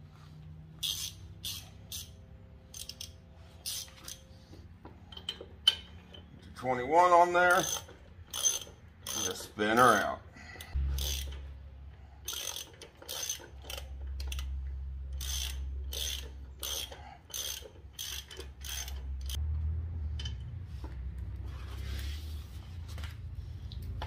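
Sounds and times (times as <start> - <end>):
ratchet wrench clicking: 0.8 - 4.3, 7.5 - 9.6, 10.7 - 19.4.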